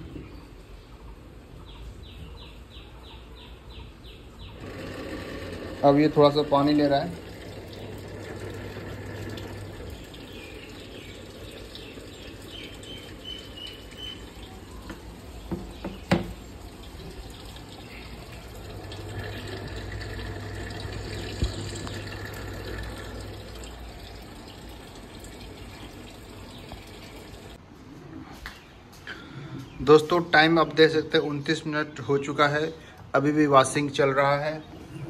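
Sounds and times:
low machine hum: 0:04.6 - 0:15.4, 0:16.4 - 0:27.6
water rushing into washing machine: 0:04.6 - 0:27.6.

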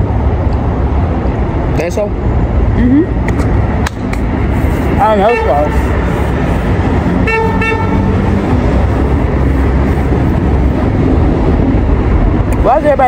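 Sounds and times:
low rumble of traffic: 0:00.0 - 0:13.0
car horn honking: 0:05.2 - 0:05.9, 0:07.2 - 0:08.3.

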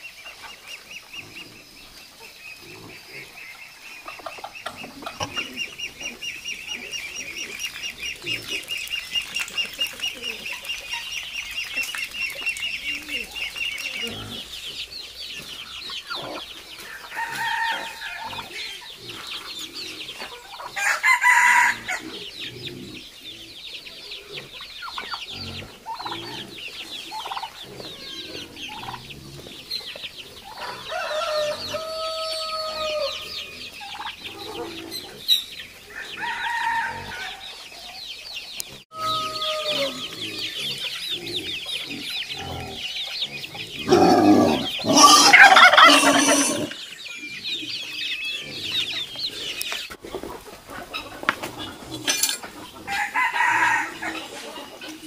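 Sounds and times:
chickens clucking: 0:00.0 - 0:55.0
rooster crowing: 0:16.9 - 0:18.5, 0:20.8 - 0:22.0, 0:30.6 - 0:33.3, 0:35.9 - 0:37.4, 0:38.9 - 0:40.1, 0:44.0 - 0:46.7, 0:52.9 - 0:54.3.

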